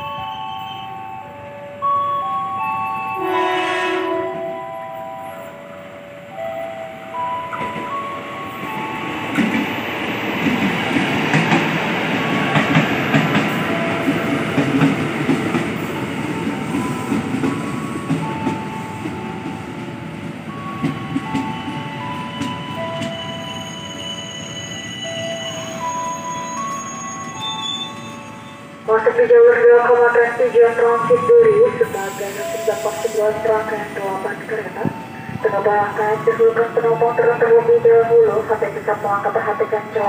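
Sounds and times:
train wheels rumbling and clacking: 0:07.2 - 0:28.1.

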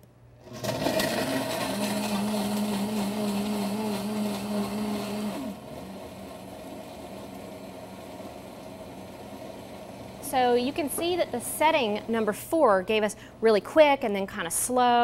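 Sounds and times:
blender humming: 0:00.4 - 0:12.4.

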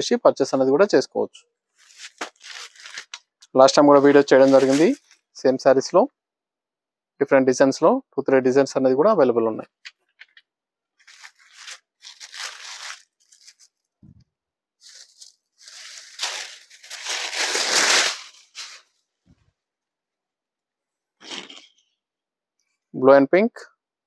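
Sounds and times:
fabric and paper rustling: 0:01.7 - 0:05.4, 0:11.0 - 0:14.2, 0:14.8 - 0:19.4.

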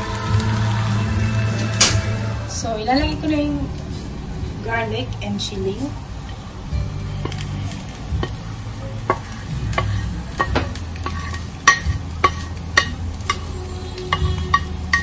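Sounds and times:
fish cake sizzling in a pan: 0:00.0 - 0:15.0
low hum: 0:00.0 - 0:15.0.

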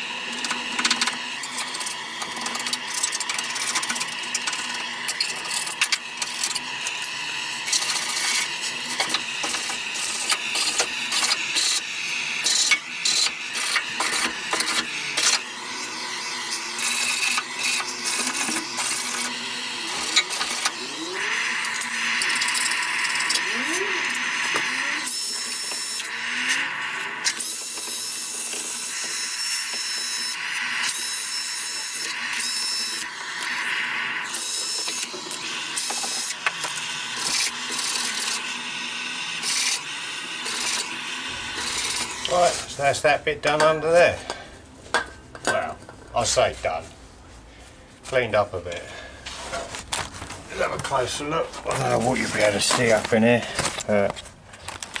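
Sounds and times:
cordless drill running: 0:00.0 - 0:42.7
blowtorch hissing: 0:00.0 - 0:43.0.

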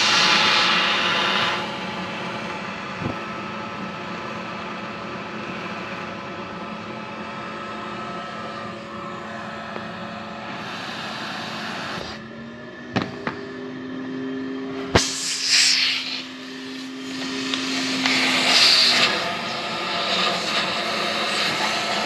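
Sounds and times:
vacuum motor running: 0:00.0 - 0:22.0
liquid and air sucked through hose: 0:14.9 - 0:22.0.

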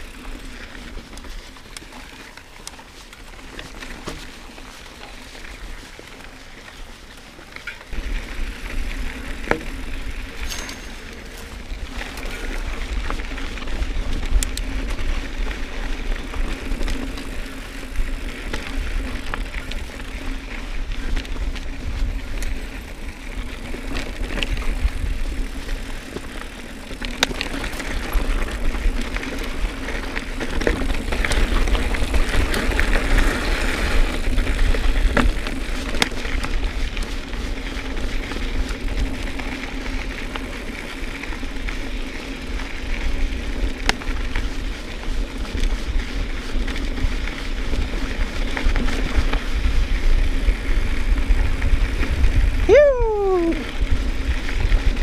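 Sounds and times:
tyres on dirt: 0:00.0 - 0:52.7
bike clicks and rattles: 0:00.0 - 0:55.0
wind rumble on microphone: 0:07.9 - 0:26.6, 0:27.4 - 0:55.0.

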